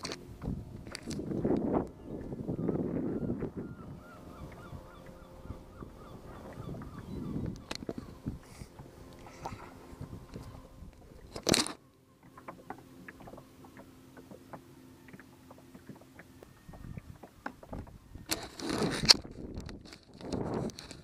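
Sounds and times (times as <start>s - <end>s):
small clicks and knocks: 0.8s - 1.2s, 7.5s - 8.0s, 10.3s - 16.3s, 17.4s - 21.0s.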